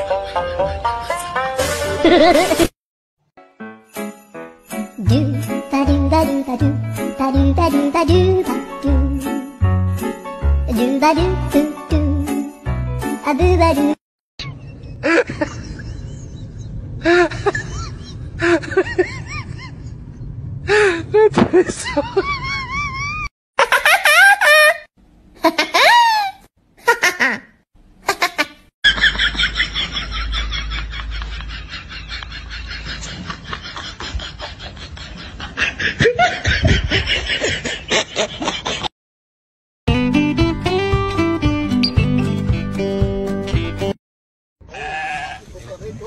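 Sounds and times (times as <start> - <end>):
human laughter: 2.0 - 2.7, 14.4 - 20.0, 20.7 - 27.5, 28.1 - 38.9.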